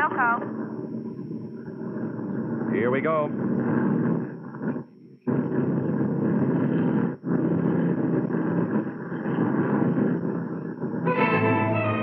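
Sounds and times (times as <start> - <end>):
propeller aircraft engines droning: 11.0 - 12.0.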